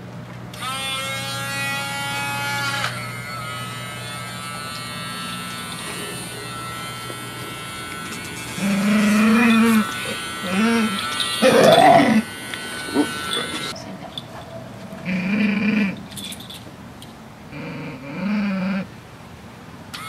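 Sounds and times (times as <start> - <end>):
nail grinder whining: 0.5 - 13.8.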